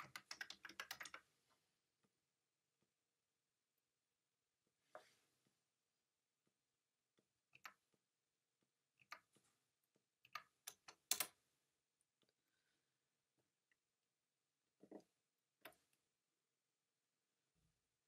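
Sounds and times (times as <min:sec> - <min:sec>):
computer keyboard and mouse clicks: 0:00.0 - 0:01.2, 0:10.2 - 0:11.4.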